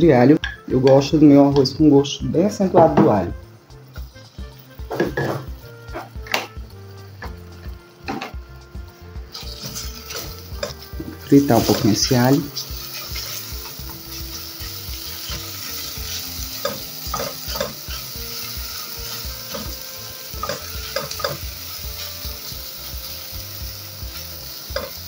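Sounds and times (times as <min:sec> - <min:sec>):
garlic sizzling in oil: 0:03.2 - 0:25.0
spatula stirring in a pot: 0:09.3 - 0:25.0.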